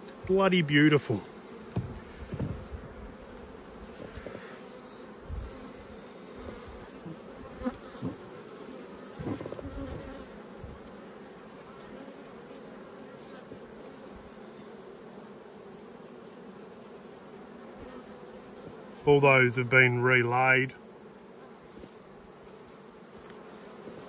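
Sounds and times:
bees buzzing: 0.0s - 24.0s.

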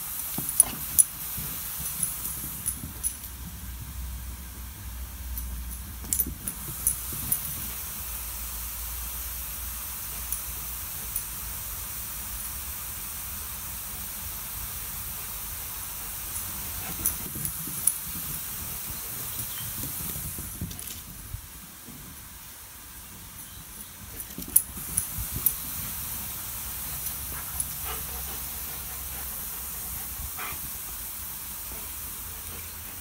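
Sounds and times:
sprinkler spraying with steady hiss: 0.0s - 33.0s
dog paws thudding on lawn: 16.6s - 22.5s.

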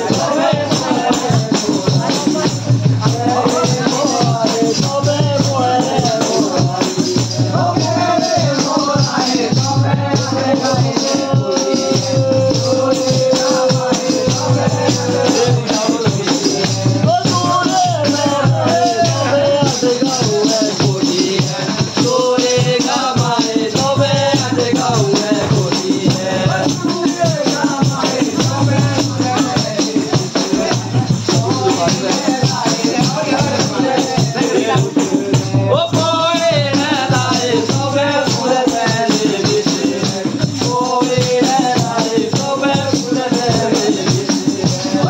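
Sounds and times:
hand drum beat: 0.0s - 45.0s
person singing folk song: 0.0s - 45.0s
tambourines jingling: 0.0s - 45.0s.

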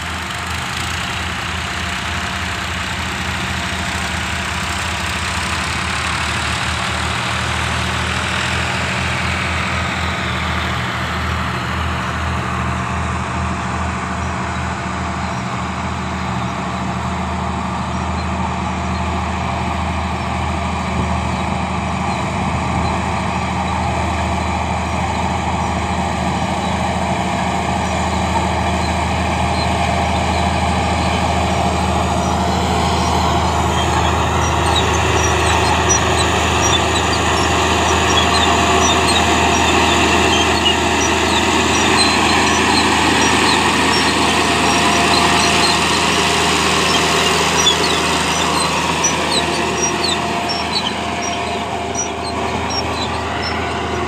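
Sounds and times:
bulldozer diesel engine under load: 0.0s - 54.0s
short high squeaks and clinks: 28.7s - 54.0s.

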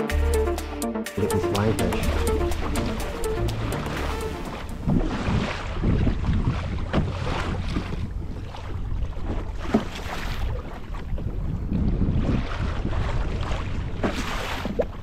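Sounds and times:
waves splashing against kayak hull: 1.2s - 15.0s
wind buffeting microphone: 4.5s - 15.0s.

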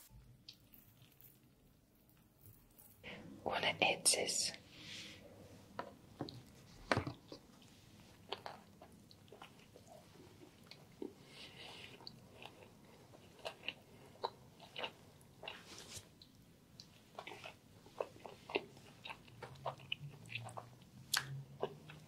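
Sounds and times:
chewing crunchy sandwich: 0.5s - 3.0s, 7.1s - 22.0s.

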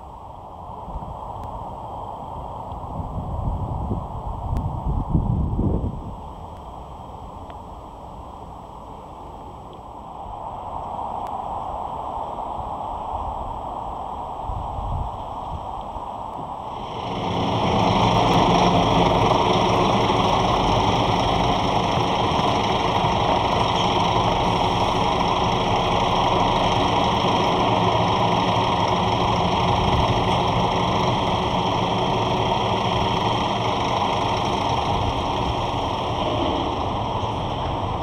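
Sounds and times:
diesel lorry engine idling: 16.7s - 38.0s.

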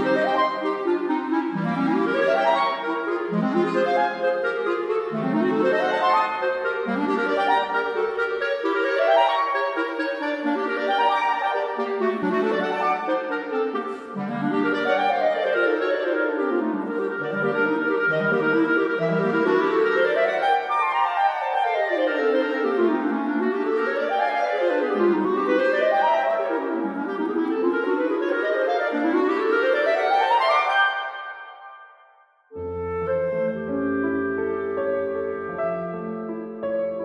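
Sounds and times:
clarinet duet: 0.0s - 37.0s.

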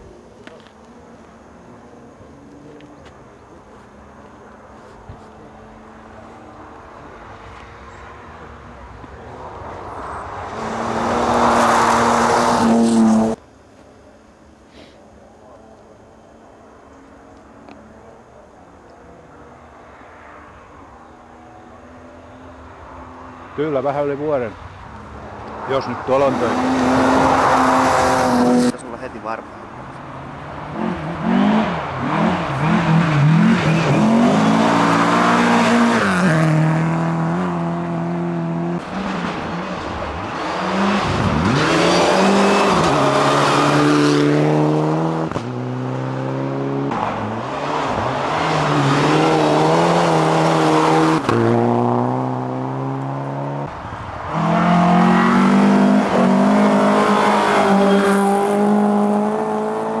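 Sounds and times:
rally car engine revving: 30.7s - 53.7s, 54.3s - 60.0s.

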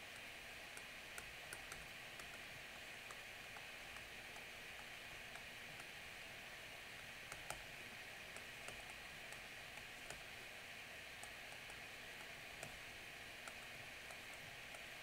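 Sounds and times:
microphone hiss: 0.0s - 15.0s
stylus tapping screen: 7.3s - 7.7s.

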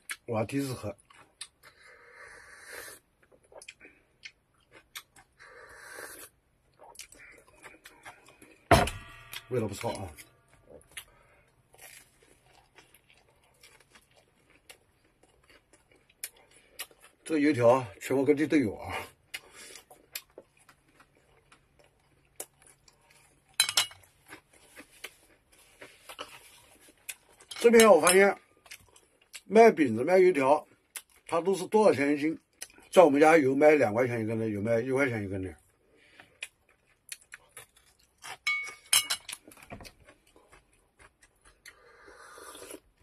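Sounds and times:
chopsticks clinking on steel bowl: 23.6s - 24.0s, 38.4s - 39.4s.

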